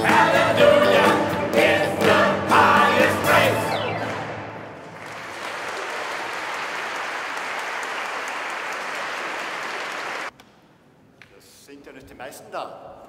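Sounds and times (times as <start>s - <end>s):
choir singing final chord: 0.0s - 4.6s
audience applauding: 3.5s - 10.3s.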